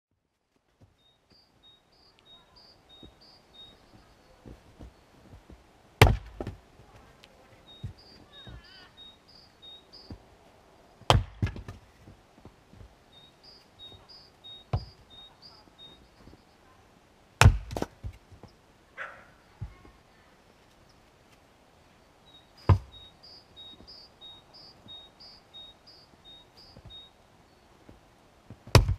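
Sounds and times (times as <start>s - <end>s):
high chirps: 1.0s - 5.1s, 7.5s - 10.2s, 13.1s - 16.6s, 22.2s - 27.7s
axe splitting wood: 6.0s - 6.6s, 11.1s - 11.8s, 17.4s - 18.2s, 28.6s - 28.9s
split wood falling: 17.4s - 18.2s, 28.6s - 28.9s.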